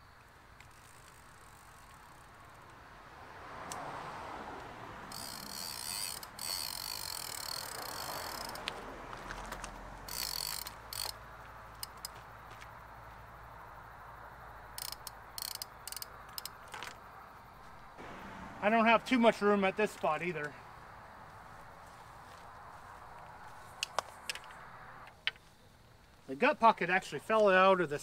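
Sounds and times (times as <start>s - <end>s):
fishing reel ratcheting: 5.1s - 8.7s, 10.1s - 11.2s, 14.8s - 16.8s.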